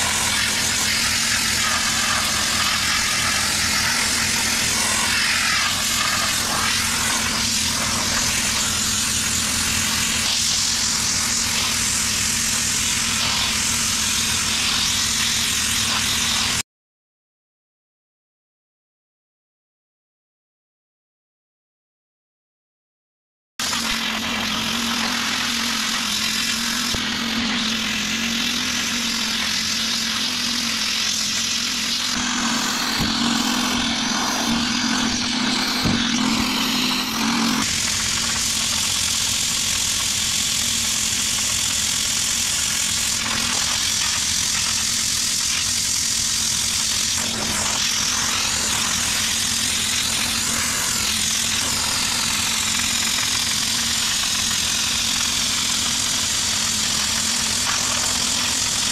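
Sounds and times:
sandblaster hissing on wood: 0.0 - 16.6, 23.6 - 58.9
steady low hum: 32.0 - 39.4.

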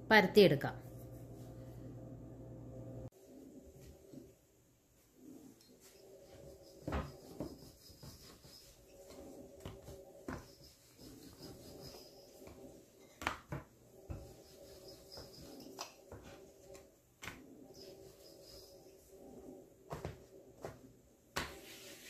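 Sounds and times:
faint steady hum: 0.0 - 21.5
rolling pin rubbing dough: 5.1 - 22.0.

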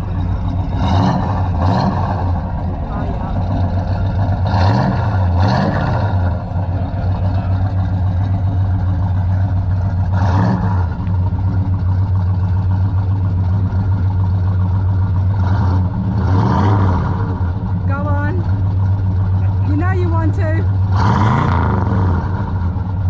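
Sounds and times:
car engine idling and revving: 0.0 - 23.0.

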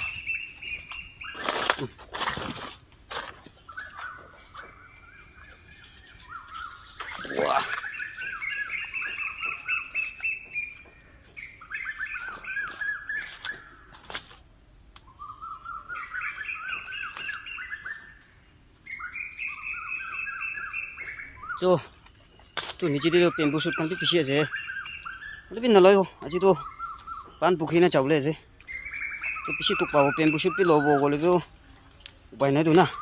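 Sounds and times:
bird chirping: 0.0 - 14.4, 15.0 - 33.0
footsteps on dry leaves: 0.0 - 14.4.

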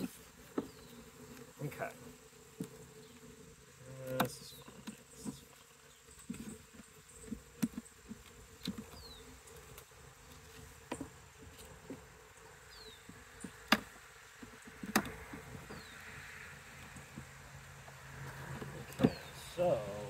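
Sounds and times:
honeybees buzzing: 0.0 - 20.0
sharp clicks and knocks: 13.0 - 15.9.

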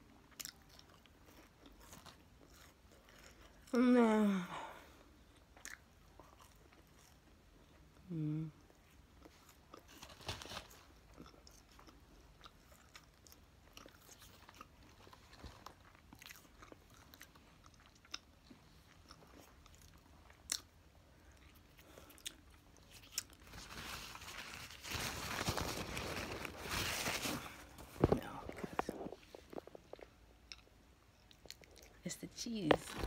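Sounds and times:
chewing and biting food: 0.2 - 3.7, 5.3 - 7.9, 10.7 - 23.5, 28.3 - 32.0.

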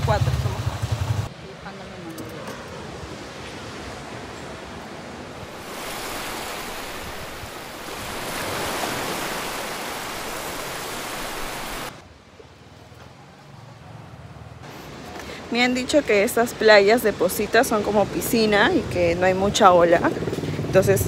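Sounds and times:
ocean surf washing on beach: 0.4 - 12.0.

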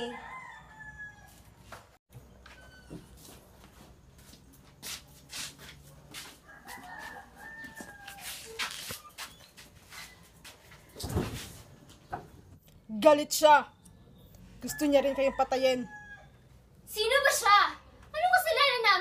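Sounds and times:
rooster crowing faintly: 0.0 - 1.8, 6.1 - 9.3
footsteps: 1.3 - 12.3.

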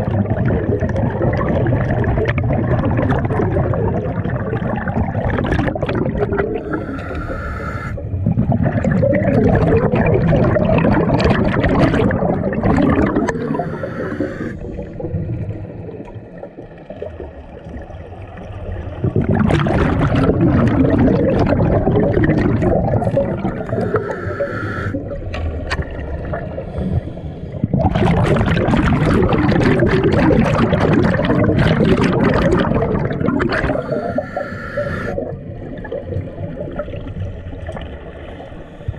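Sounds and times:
exhaled bubbles burbling underwater: 0.0 - 38.9
hissing inhale through regulator: 6.5 - 8.0, 13.1 - 15.0, 23.4 - 25.0, 26.5 - 27.7, 33.5 - 35.2, 38.4 - 38.9.

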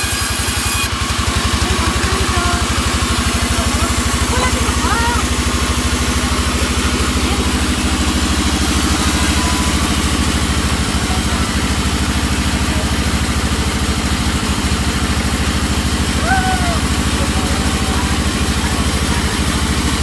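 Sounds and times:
saw blade hissing through wood: 0.0 - 1.3
band saw engine running: 0.0 - 20.0.

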